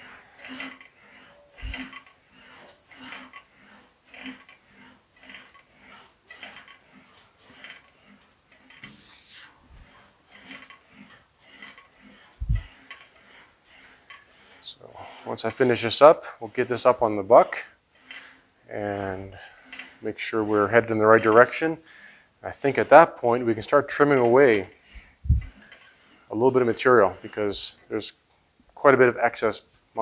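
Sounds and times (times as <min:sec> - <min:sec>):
sheet metal rubbing and rattling: 0:00.0 - 0:21.8.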